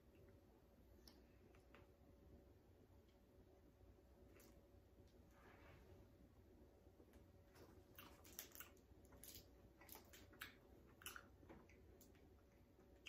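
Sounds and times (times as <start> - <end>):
chewing crunchy candy: 7.8 - 13.0.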